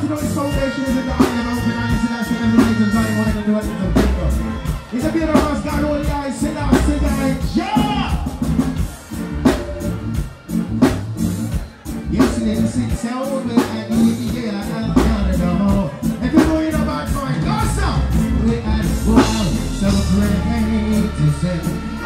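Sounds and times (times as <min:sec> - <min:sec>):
live reggae band: 0:00.0 - 0:22.0
person singing: 0:18.4 - 0:22.0.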